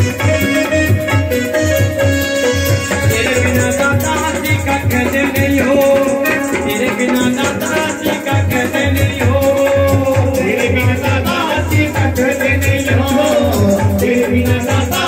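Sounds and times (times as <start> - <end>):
fast drum beat: 0.0 - 15.0
jingling rattle percussion: 0.0 - 15.0.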